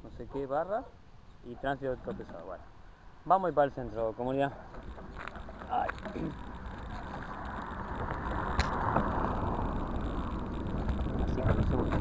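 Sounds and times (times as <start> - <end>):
tyres rolling on road: 4.7 - 12.0
wind on microphone: 4.8 - 12.0.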